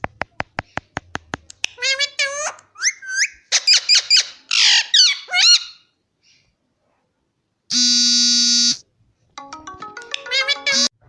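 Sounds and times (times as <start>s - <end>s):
parakeets squawking: 1.8s - 5.9s, 10.3s - 10.9s
flat steady buzzing tone: 7.7s - 8.9s.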